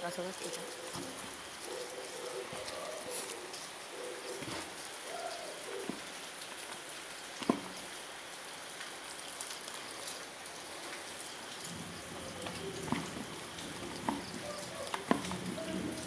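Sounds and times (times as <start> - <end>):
hand kneading wet food: 0.4 - 6.2, 12.0 - 16.0.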